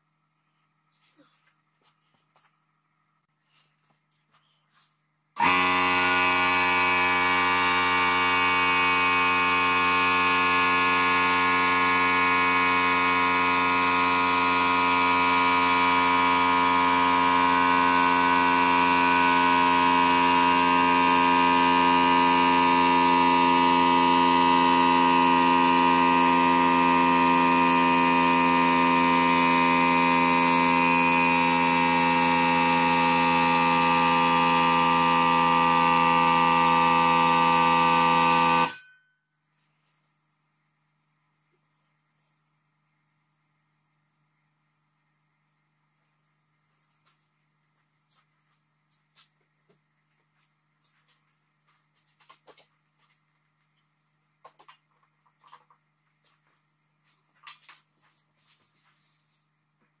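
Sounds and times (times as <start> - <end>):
air compressor droning: 4.7 - 39.0.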